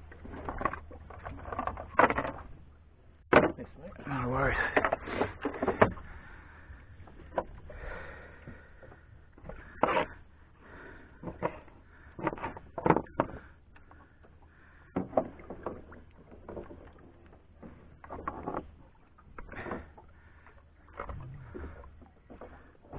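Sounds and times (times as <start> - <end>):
faint low rumble: 20.2 - 22.9.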